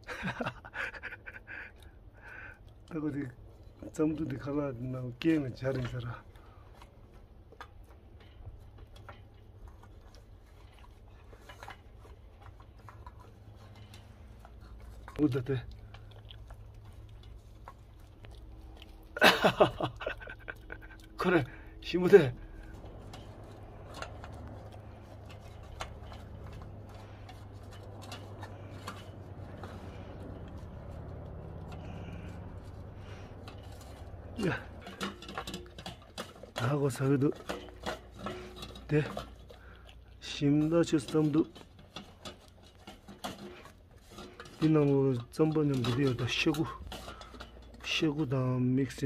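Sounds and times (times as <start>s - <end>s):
low steady rumble: 0.0s - 49.0s
dog eating from metal bowl: 1.7s - 49.0s
food clinking in steel bowl: 33.4s - 39.9s.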